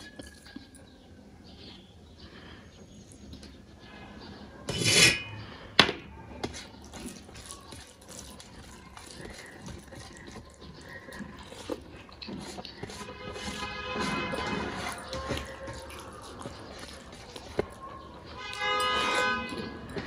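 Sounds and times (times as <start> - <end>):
fingers mixing food on plate: 6.4 - 20.0
person eating: 6.4 - 20.0.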